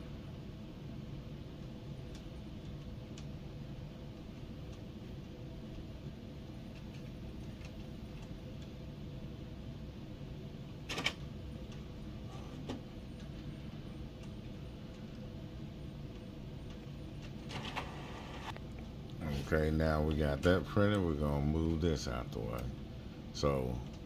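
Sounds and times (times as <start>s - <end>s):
printer humming: 0.0s - 18.6s.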